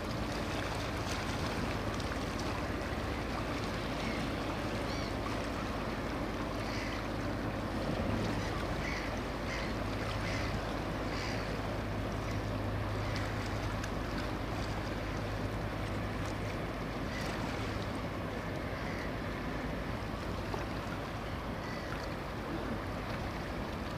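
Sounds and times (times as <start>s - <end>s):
boat engine droning: 0.0s - 23.9s
wind: 0.0s - 23.9s.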